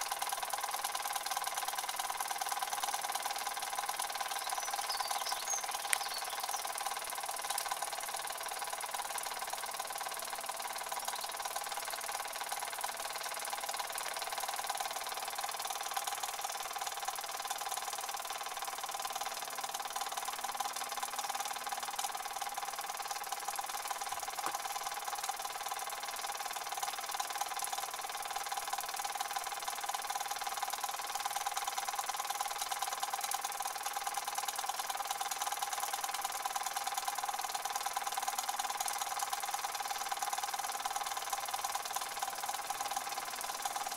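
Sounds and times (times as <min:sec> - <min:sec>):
toy steam engines running: 0:00.0 - 0:43.9
sharp click: 0:05.4 - 0:06.3.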